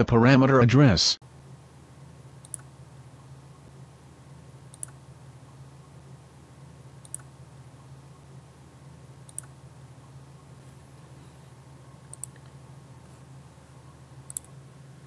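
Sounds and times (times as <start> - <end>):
faint low hum: 1.2 - 15.0
computer mouse clicks: 2.4 - 2.7, 4.7 - 5.0, 7.0 - 7.3, 9.2 - 9.6, 12.1 - 12.6, 14.2 - 14.6.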